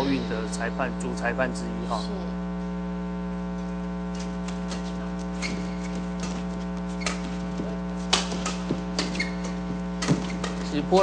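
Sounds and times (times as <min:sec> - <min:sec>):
electrical hum: 0:00.0 - 0:11.0
shoe squeaks on court: 0:04.7 - 0:07.5, 0:08.1 - 0:10.8
racket hitting shuttlecock: 0:08.0 - 0:10.7.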